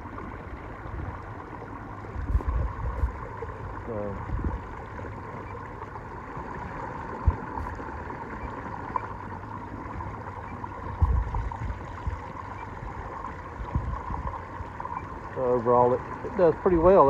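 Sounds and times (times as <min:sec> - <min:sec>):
electric trolling motor hum: 0:00.0 - 0:17.0
water noise: 0:00.0 - 0:17.0
sharp low thump: 0:11.0 - 0:11.4.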